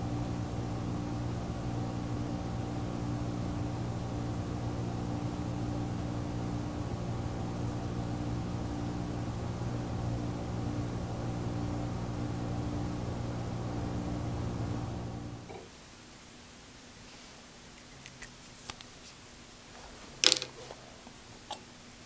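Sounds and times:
machine humming: 0.0 - 15.7.

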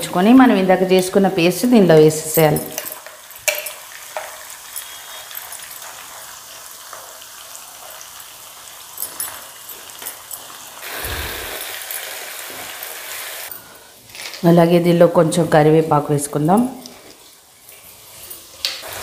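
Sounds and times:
hot oil sizzling in a pan: 3.0 - 13.5, 17.2 - 19.0.

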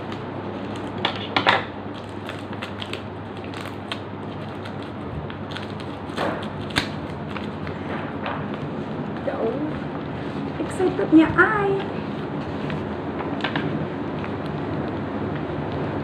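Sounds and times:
plastic mailer crinkling and tearing: 0.0 - 7.9.

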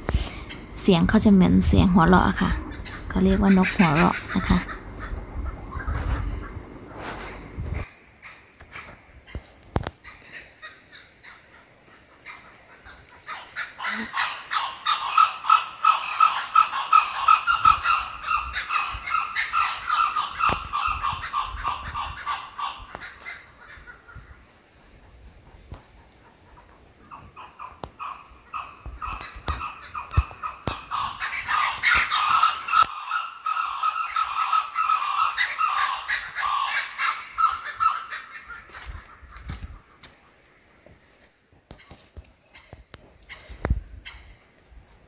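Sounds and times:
kookaburra laughing call: 2.4 - 6.6, 12.2 - 24.5, 26.2 - 40.1.

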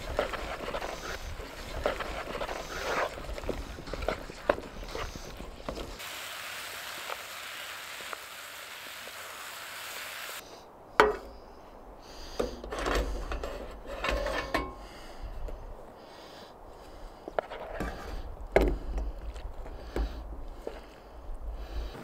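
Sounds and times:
wooden spatula scraping pot: 0.0 - 6.0
gas stove hissing: 5.9 - 10.4.

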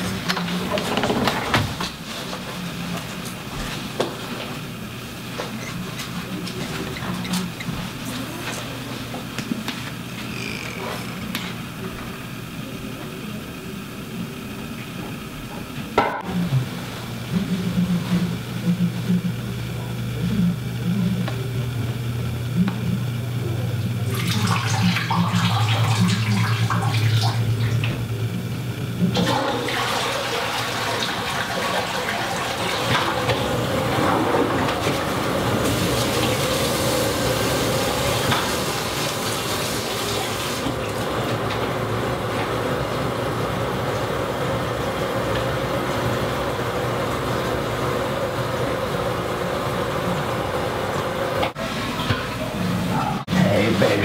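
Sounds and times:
toilet flushing: 0.0 - 19.4, 23.8 - 54.0
cistern refilling water rush: 24.0 - 28.2, 29.1 - 54.0.

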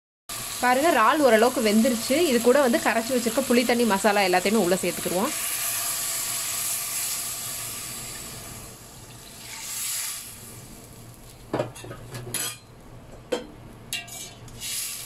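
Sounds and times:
liquid sizzling in hot pan: 0.3 - 11.8, 14.0 - 15.0
metal spoon clinking on pan: 13.3 - 14.4.

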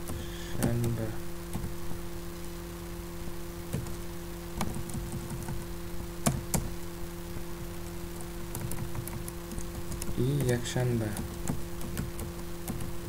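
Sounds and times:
steady low hum: 0.0 - 13.0
keyboard keys tapping: 4.6 - 6.7, 8.2 - 13.0.

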